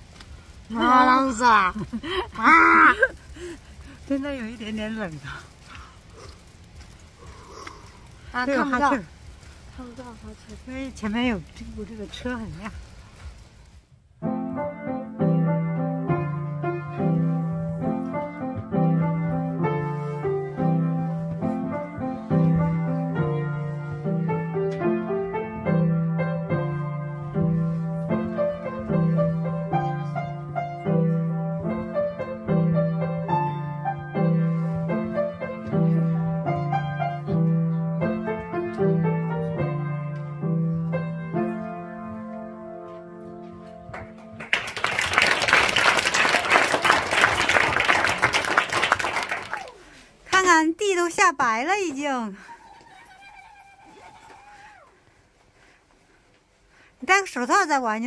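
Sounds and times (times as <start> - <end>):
child playing piano: 14.2 - 44.3
applause: 43.9 - 50.0.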